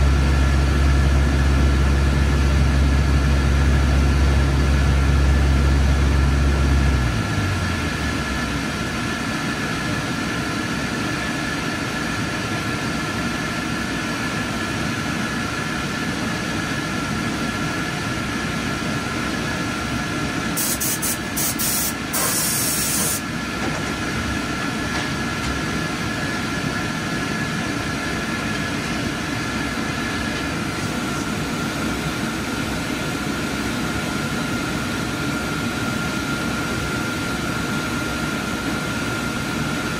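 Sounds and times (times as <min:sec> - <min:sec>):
deep motor hum: 0:00.0 - 0:08.8
high hiss burst: 0:20.6 - 0:23.2.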